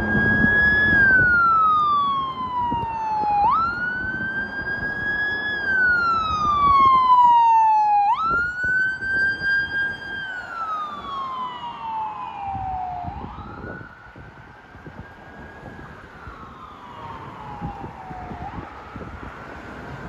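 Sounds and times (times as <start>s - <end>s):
low vehicle rumble: 0.0s - 7.4s
ambulance siren wailing: 0.0s - 20.0s.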